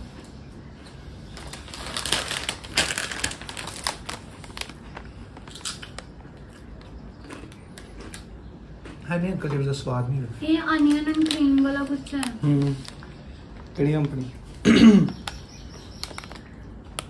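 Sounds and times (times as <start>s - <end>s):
potato chips crunching: 1.4s - 9.1s.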